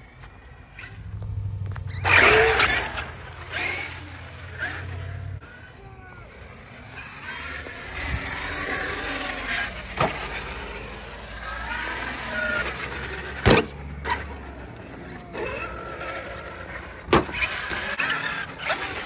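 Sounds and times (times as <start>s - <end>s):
tyre noise on concrete: 0.0s - 5.2s, 6.8s - 19.0s
electric motor whining: 0.8s - 19.0s
toy truck thudding on concrete: 8.4s - 10.8s, 15.4s - 19.0s.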